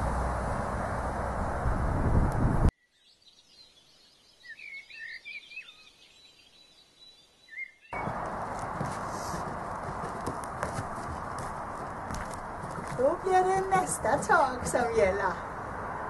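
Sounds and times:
rushing outdoor noise: 0:00.0 - 0:02.7, 0:07.9 - 0:16.0
bird chirps: 0:02.8 - 0:08.3.

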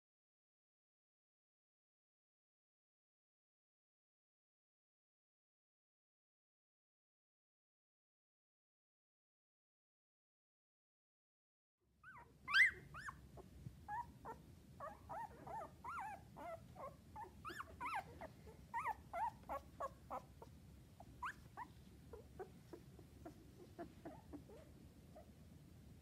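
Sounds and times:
puppies squeaking: 0:12.1 - 0:25.3.

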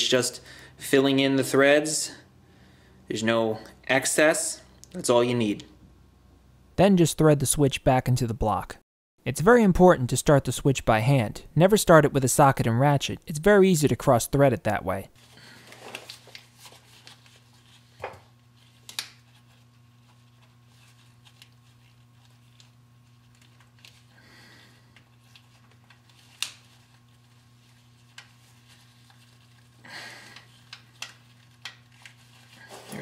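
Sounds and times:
steady low hum: 0:00.0 - 0:33.0
rustling of gloves: 0:15.2 - 0:33.0.

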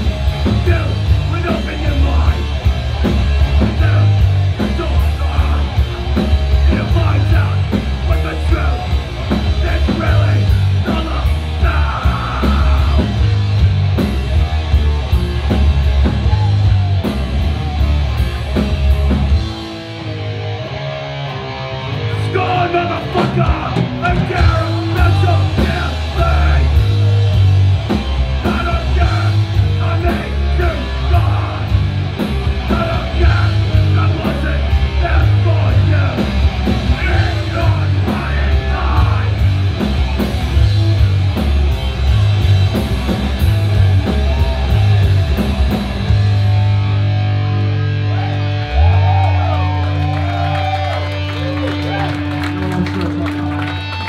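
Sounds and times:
live heavy band playing: 0:00.0 - 0:54.0
shouted vocals: 0:09.6 - 0:13.3, 0:16.0 - 0:18.0, 0:22.2 - 0:27.1, 0:28.4 - 0:32.0, 0:32.6 - 0:39.5, 0:48.0 - 0:54.0.

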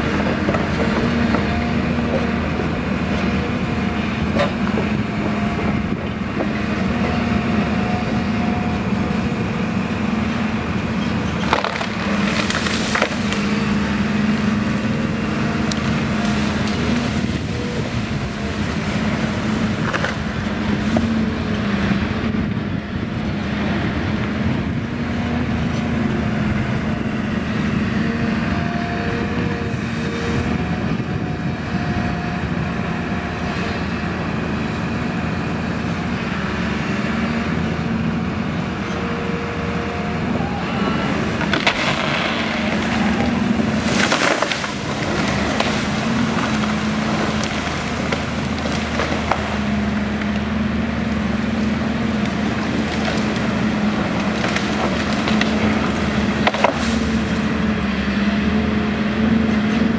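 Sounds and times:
excavator diesel engine: 0:00.0 - 0:59.9
wood cracking and splintering: 0:08.6 - 0:21.1, 0:40.4 - 0:57.6.

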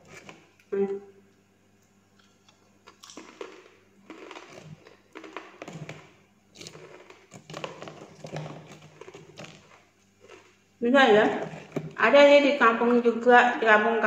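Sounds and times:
crisp chips crunching when chewed: 0:02.1 - 0:10.6
chip crackling in plastic tub: 0:03.0 - 0:10.5.

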